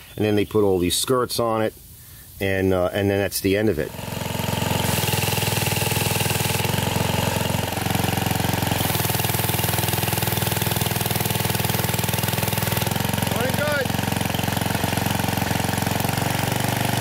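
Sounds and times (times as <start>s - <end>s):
pressure washer engine running: 3.8s - 17.0s.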